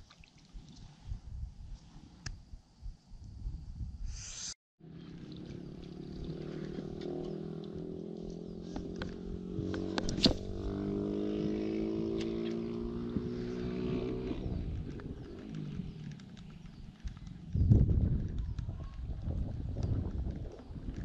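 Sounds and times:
small engine running: 4.8s - 18.6s.

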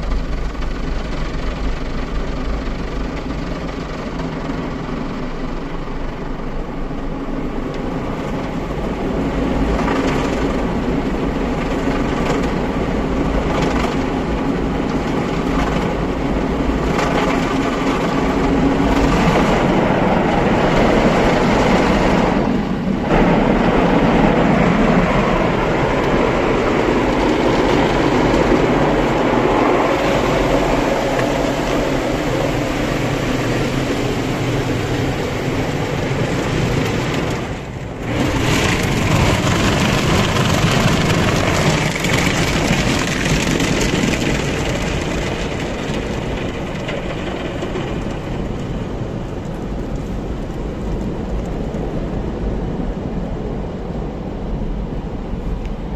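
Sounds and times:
water spray in car wash: 0.0s - 51.9s.

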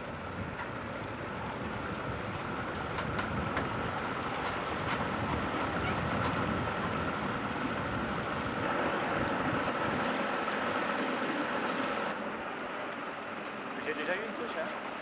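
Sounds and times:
motorboat engine running: 0.0s - 15.0s.

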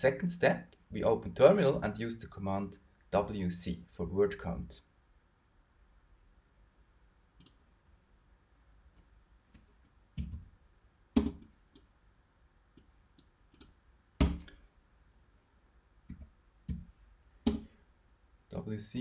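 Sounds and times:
computer keyboard and mouse clicks: 7.4s - 7.6s, 11.2s - 11.9s, 12.8s - 14.5s.

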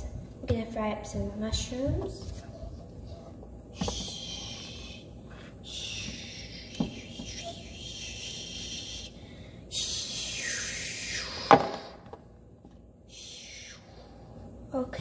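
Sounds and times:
hiss: 3.8s - 12.0s, 13.1s - 14.0s.

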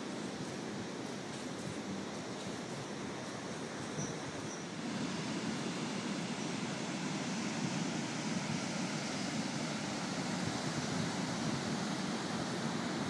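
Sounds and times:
wind: 0.0s - 13.0s.

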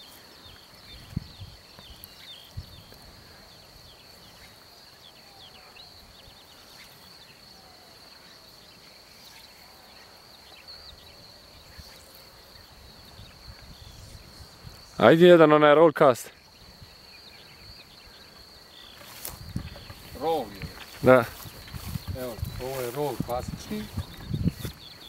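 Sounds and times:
high insect trill: 0.0s - 25.0s
bird chirps: 16.3s - 25.0s.

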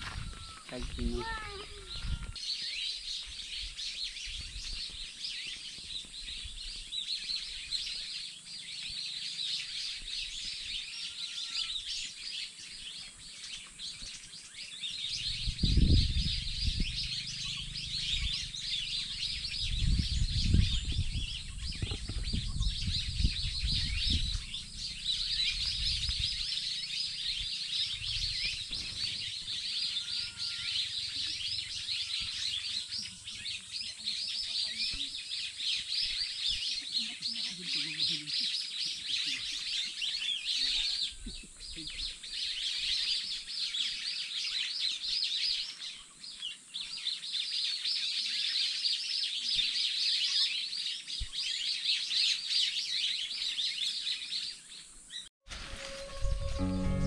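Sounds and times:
birds chirping and twittering: 0.0s - 57.0s
low rumbling bursts: 55.5s - 57.0s.

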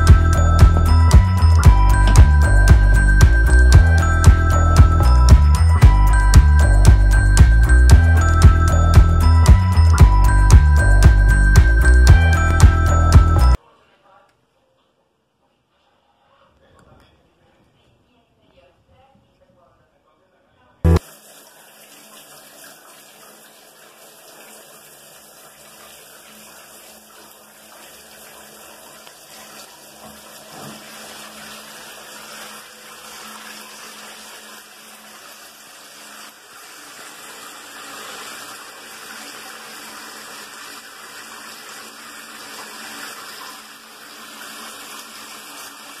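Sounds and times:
showerhead spraying water: 20.9s - 46.0s.

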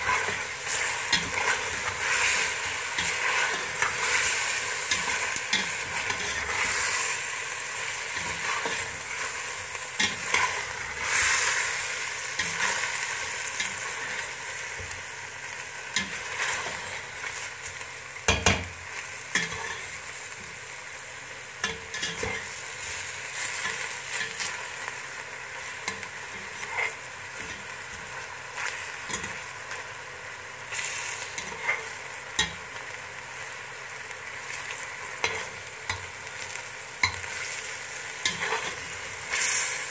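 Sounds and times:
metal spatula scraping a pot: 0.0s - 7.3s, 25.9s - 27.7s, 30.7s - 32.5s, 38.2s - 39.9s
chicken sizzling in hot oil: 0.0s - 39.9s.

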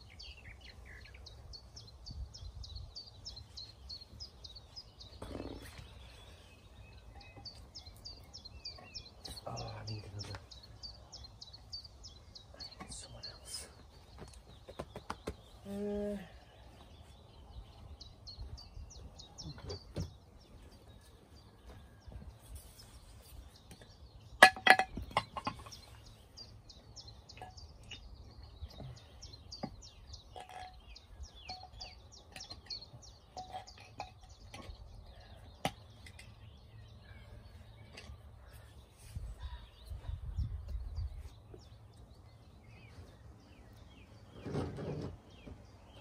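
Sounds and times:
small birds singing: 0.0s - 46.0s.

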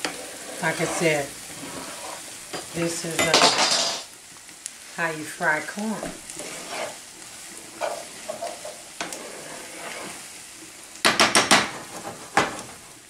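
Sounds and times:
corn sizzling in a skillet: 0.0s - 13.0s
spoon knocking on pan: 11.0s - 12.6s.

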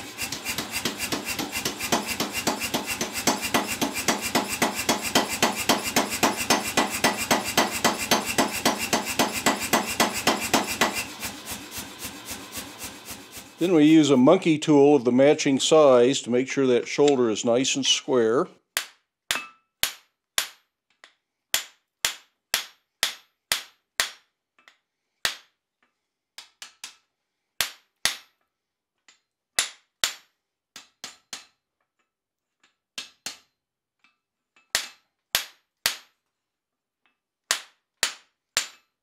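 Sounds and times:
hammer striking steel: 0.0s - 14.2s, 18.8s - 20.6s, 21.6s - 24.2s.

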